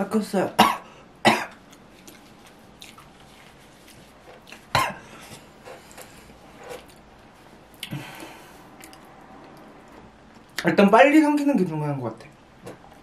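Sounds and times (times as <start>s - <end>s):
man coughing: 0.6s - 1.5s, 4.8s - 5.1s.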